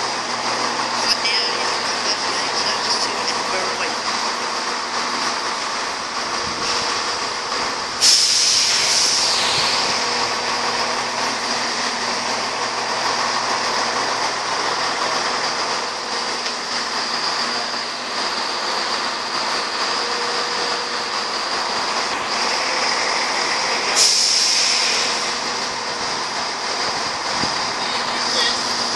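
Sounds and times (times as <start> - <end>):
diesel train moving with wheel noise: 0.0 - 28.9
air release hiss: 8.0 - 10.2, 23.8 - 25.4.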